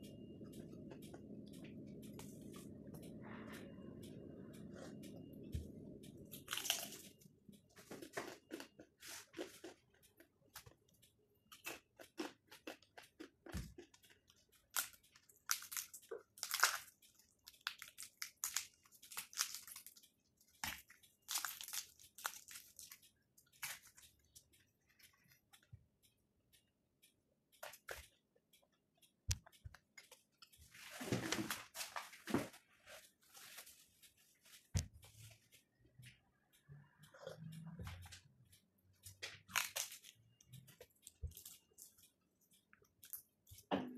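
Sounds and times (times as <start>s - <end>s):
crunchy flatbread chewing: 6.4s - 7.1s, 7.8s - 10.9s, 11.5s - 25.7s, 39.3s - 43.7s.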